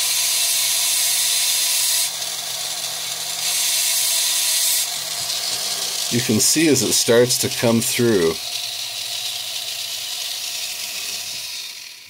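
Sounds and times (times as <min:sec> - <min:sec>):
motor whine: 0:00.0 - 0:12.0
rotary tool grinding stone: 0:00.0 - 0:12.0.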